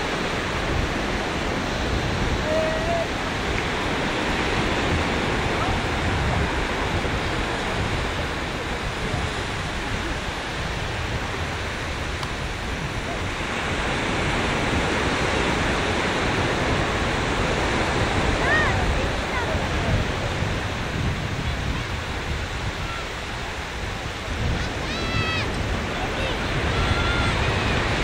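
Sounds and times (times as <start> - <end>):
ocean surf breaking on beach: 0.0 - 28.0
wind rumbling on microphone: 0.0 - 28.0.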